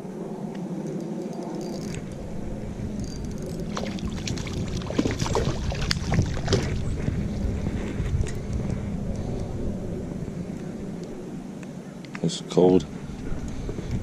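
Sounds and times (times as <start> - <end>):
steady low rumble: 0.0 - 14.0
fish thrashing and splashing: 3.4 - 7.1.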